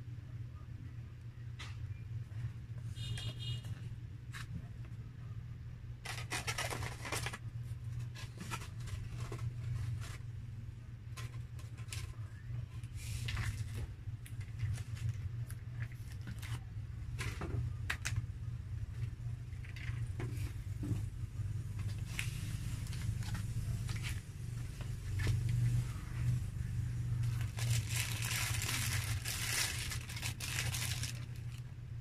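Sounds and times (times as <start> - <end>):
steady low hum: 0.0 - 32.0
styrofoam boxes being handled: 27.2 - 31.6.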